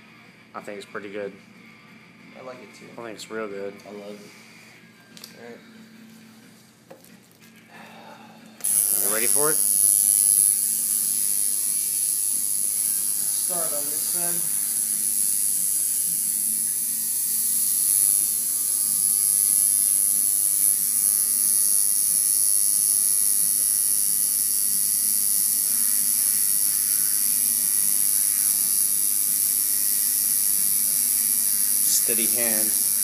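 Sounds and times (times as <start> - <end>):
tattoo machine buzzing: 8.6 - 33.0.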